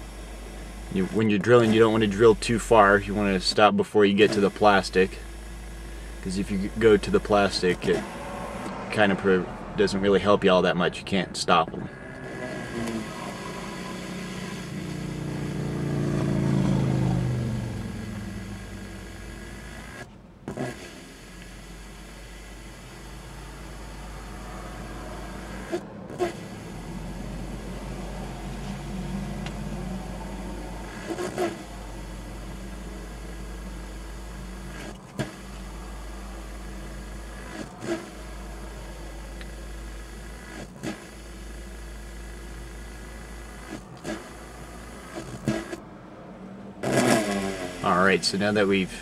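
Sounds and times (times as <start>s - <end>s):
handheld drill on glass: 4.2s - 8.7s, 11.9s - 17.2s, 18.0s - 27.8s, 30.2s - 38.4s, 39.3s - 45.8s, 46.8s - 48.3s
drill click: 30.8s - 35.7s.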